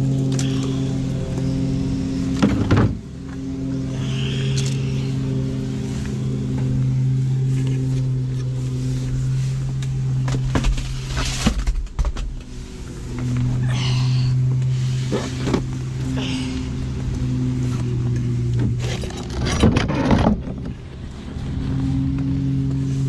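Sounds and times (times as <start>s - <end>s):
engine idling hum: 0.0s - 23.0s.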